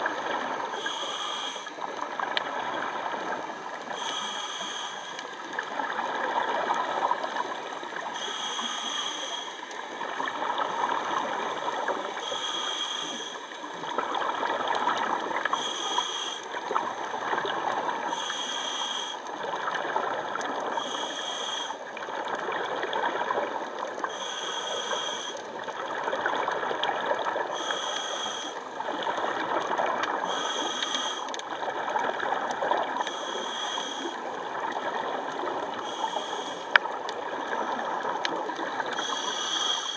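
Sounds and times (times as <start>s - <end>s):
regulator hiss on inhale: 0.2s - 2.1s, 3.1s - 5.8s, 7.1s - 10.3s, 11.6s - 13.9s, 15.0s - 17.2s, 18.0s - 19.6s, 20.5s - 22.1s, 24.0s - 25.8s, 27.4s - 29.4s, 30.2s - 31.6s, 33.0s - 34.3s, 35.7s - 38.2s, 38.9s - 39.9s.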